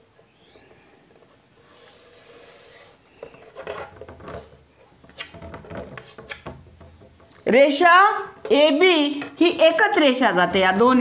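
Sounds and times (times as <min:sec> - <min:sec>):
chalk scraping on blackboard: 0:01.6 - 0:03.9.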